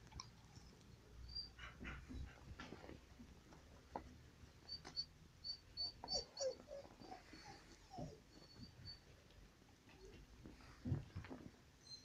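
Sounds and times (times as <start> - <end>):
dog whimpering faintly: 4.6 - 9.2.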